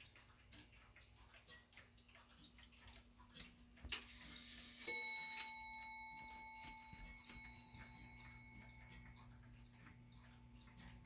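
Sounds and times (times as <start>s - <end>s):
faint clock ticking: 0.0s - 11.0s
clock chime bell note: 4.2s - 9.4s.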